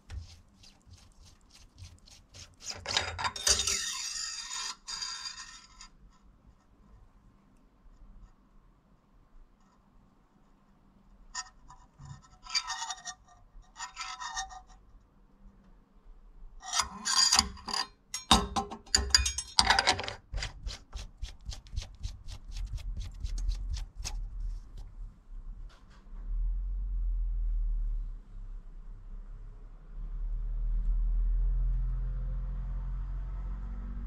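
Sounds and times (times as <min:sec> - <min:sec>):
metal dipstick scraping: 0:00.0 - 0:04.4, 0:16.6 - 0:21.1.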